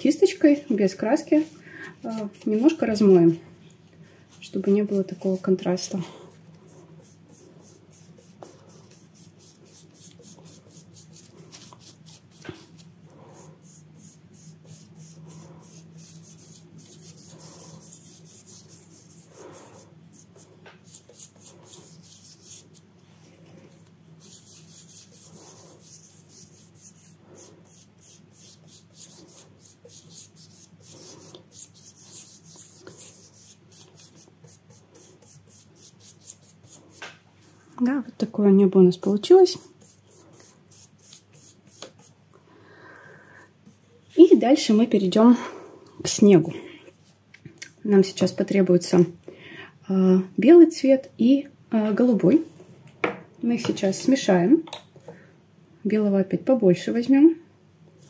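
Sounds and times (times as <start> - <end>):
dry paintbrush rubbing on paper: 0.0 - 3.4, 4.3 - 37.6, 39.0 - 42.2.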